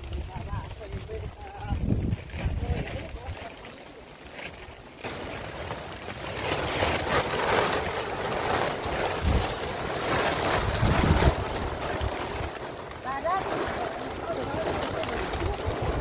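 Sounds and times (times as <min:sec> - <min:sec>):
wind buffeting microphone: 0:00.0 - 0:03.5, 0:06.7 - 0:16.0
plastic sheet rustling: 0:00.0 - 0:16.0.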